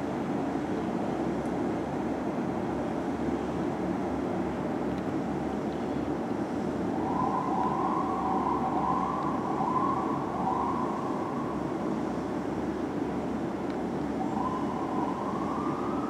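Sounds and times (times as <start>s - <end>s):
city traffic noise: 0.0s - 16.0s
fire engine siren wavering: 7.0s - 11.8s, 14.1s - 16.0s.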